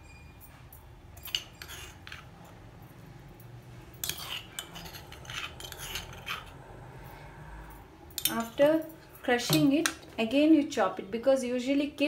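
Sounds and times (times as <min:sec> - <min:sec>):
knife scraping board: 0:04.0 - 0:06.6.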